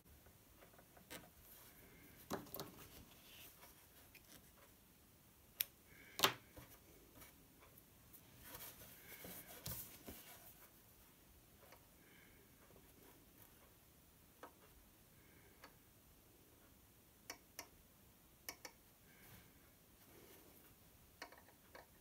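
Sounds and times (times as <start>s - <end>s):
small clicks and taps: 2.2s - 4.8s, 18.4s - 18.8s, 21.2s - 22.0s
fabric mask rustling: 8.1s - 11.0s.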